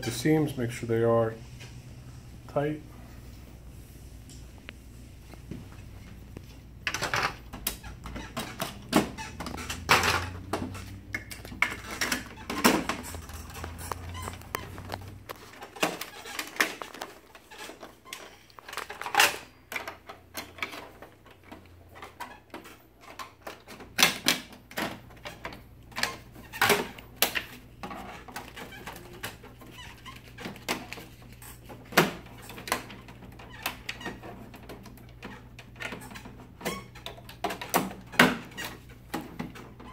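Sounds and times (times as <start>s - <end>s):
low steady hum: 0.0s - 15.5s
plastic panels clicking and knocking: 6.8s - 29.5s.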